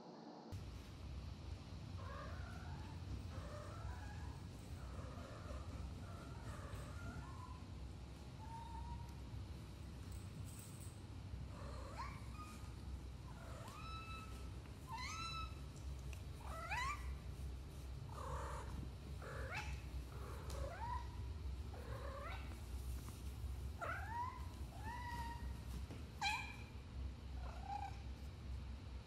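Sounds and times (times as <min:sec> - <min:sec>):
cat meowing: 0:13.3 - 0:15.7.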